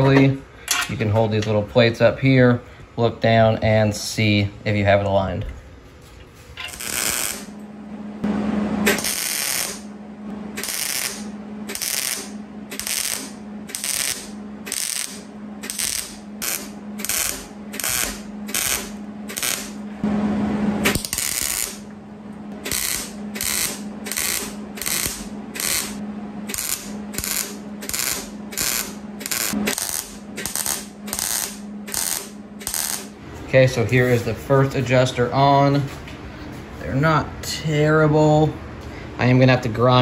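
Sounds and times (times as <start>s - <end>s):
welder low hum: 1.1s - 40.0s
welding arc crackle: 6.6s - 7.5s, 8.9s - 9.9s, 10.6s - 19.8s, 20.8s - 21.8s, 22.7s - 33.2s.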